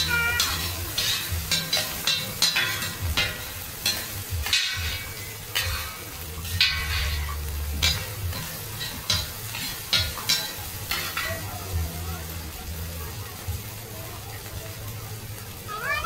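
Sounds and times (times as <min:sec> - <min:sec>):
metal spatulas scraping griddle: 0:00.0 - 0:11.5
food sizzling in oil: 0:00.0 - 0:16.0.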